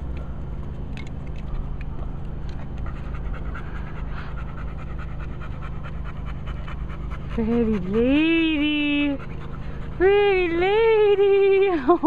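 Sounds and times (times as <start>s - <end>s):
low hum: 0.0s - 12.0s
dog panting: 2.5s - 12.0s.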